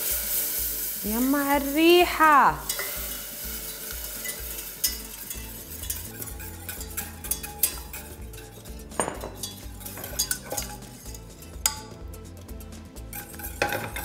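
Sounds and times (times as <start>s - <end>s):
background music with low beat: 0.0s - 14.0s
utensil scraping a saucepan: 2.7s - 11.8s, 13.1s - 14.0s.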